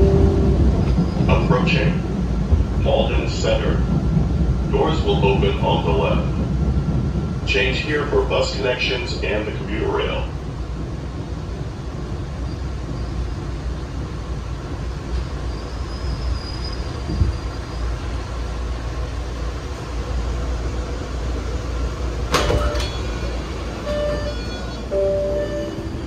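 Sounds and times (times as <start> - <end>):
subway car rumble: 0.0 - 26.0
faint high squeal: 15.4 - 17.9.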